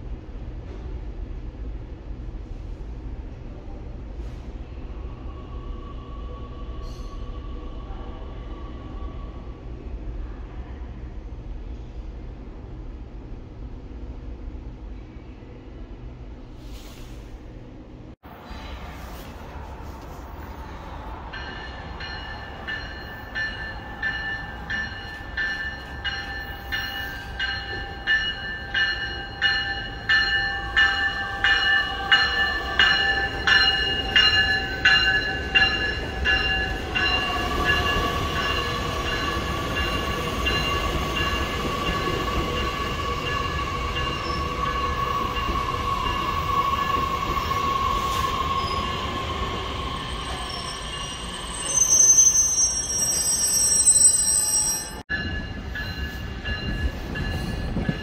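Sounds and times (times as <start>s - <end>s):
train cars rumbling past: 0.0s - 58.0s
train bell ringing: 21.3s - 47.7s, 49.6s - 58.0s
high wheel squeal: 37.0s - 55.0s.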